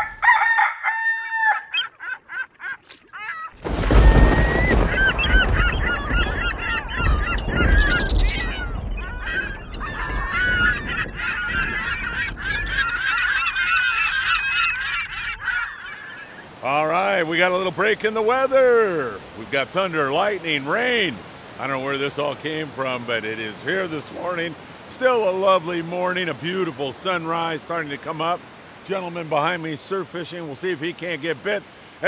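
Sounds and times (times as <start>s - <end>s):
birds honking and calling: 0.0s - 18.4s.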